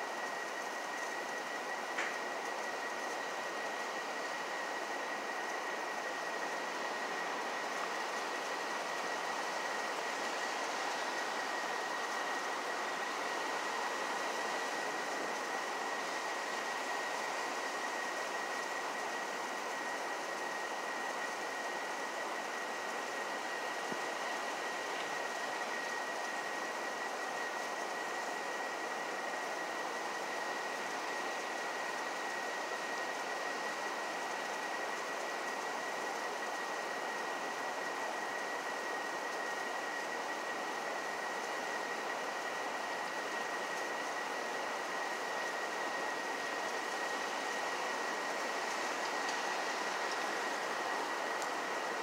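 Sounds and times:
steady hiss: 0:00.0 - 0:52.0.

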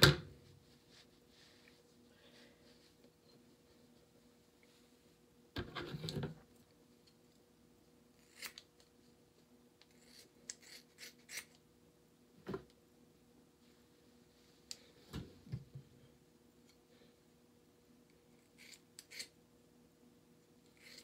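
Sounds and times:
scissors cutting hair: 0:08.2 - 0:08.8, 0:09.8 - 0:11.6, 0:18.4 - 0:19.3, 0:20.7 - 0:21.0.

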